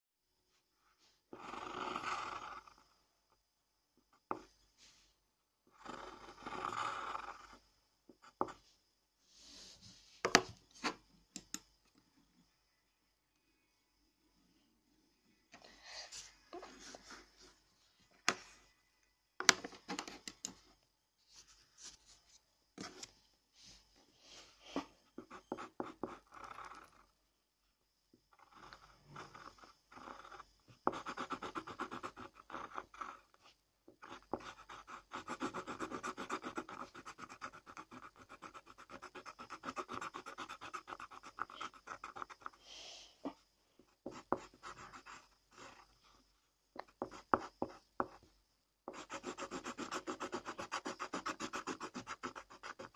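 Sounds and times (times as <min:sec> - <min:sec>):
pencil scratching on paper: 0:01.3 - 0:02.7, 0:05.8 - 0:07.6, 0:24.8 - 0:27.1, 0:28.4 - 0:42.6, 0:43.3 - 0:46.0, 0:46.8 - 0:48.2, 0:48.9 - 0:52.9.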